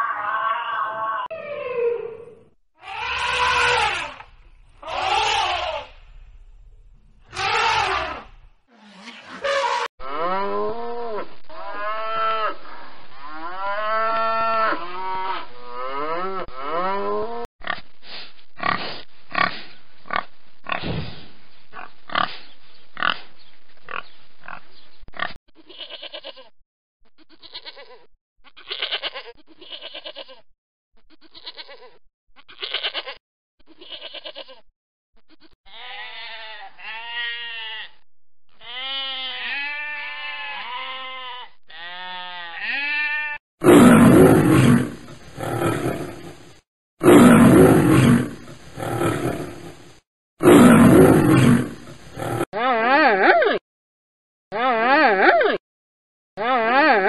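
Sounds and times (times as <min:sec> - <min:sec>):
goat bleating: 0:02.8 - 0:06.0, 0:25.6 - 0:26.5, 0:27.2 - 0:30.4, 0:31.1 - 0:34.6, 0:35.3 - 0:43.4
lion roaring: 0:07.2 - 0:12.9, 0:43.6 - 0:49.8, 0:50.4 - 0:52.5
pigs grunting: 0:18.6 - 0:21.0, 0:43.6 - 0:49.8, 0:50.4 - 0:52.5.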